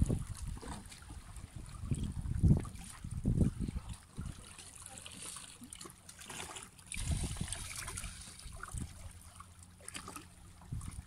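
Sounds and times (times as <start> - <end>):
wind rumble on microphone: 0.0 - 4.4, 6.9 - 9.2, 10.6 - 11.0
small waves lapping on rocks: 0.0 - 11.0.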